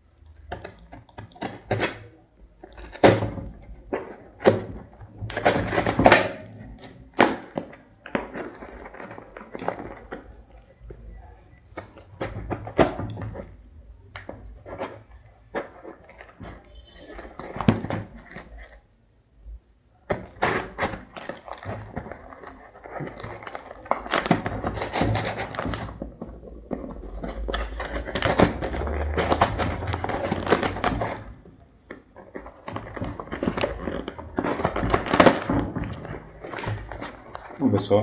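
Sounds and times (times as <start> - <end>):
cardboard scraping and rustling: 0.5 - 11.0, 14.2 - 18.8, 20.1 - 38.0
packing tape peeling and tearing: 20.1 - 31.4, 32.3 - 37.6.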